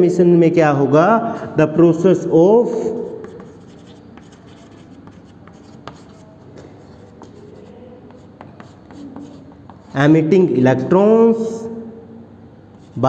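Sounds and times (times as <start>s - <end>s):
chalk tapping on board: 2.7s - 10.0s, 12.7s - 13.0s
chalk scratching on chalkboard: 2.7s - 10.2s, 12.7s - 13.0s.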